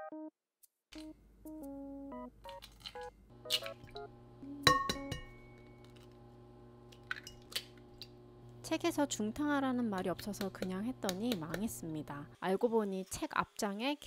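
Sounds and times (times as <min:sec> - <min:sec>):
eggshells cracking: 0:02.5 - 0:04.0
eggs clinking on glass bowl: 0:04.7 - 0:06.1.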